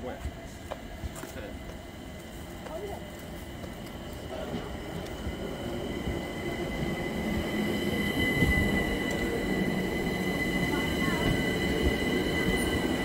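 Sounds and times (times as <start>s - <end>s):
train low rumble: 0.0s - 13.0s
train wheel squeal: 5.8s - 13.0s.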